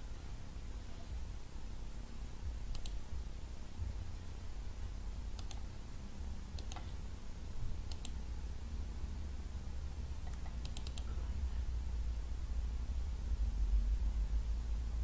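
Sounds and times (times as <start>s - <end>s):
low steady hum: 0.0s - 15.0s
computer mouse clicking: 2.7s - 3.0s, 5.3s - 5.7s, 6.6s - 7.0s, 7.8s - 8.2s, 10.2s - 11.2s.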